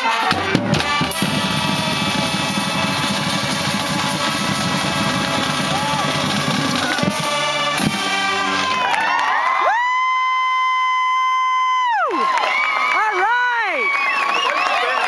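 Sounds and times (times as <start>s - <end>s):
marching band brass playing: 0.0s - 9.6s
drums: 0.0s - 12.0s.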